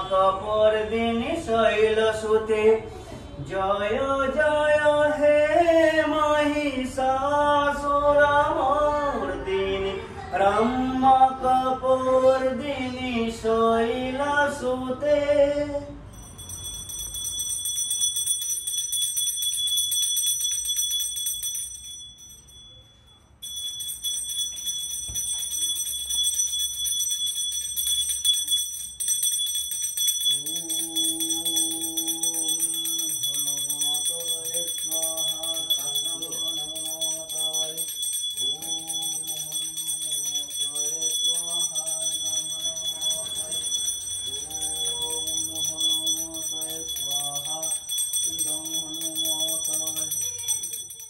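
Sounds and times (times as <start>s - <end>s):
hand bell ringing: 16.1s - 51.0s.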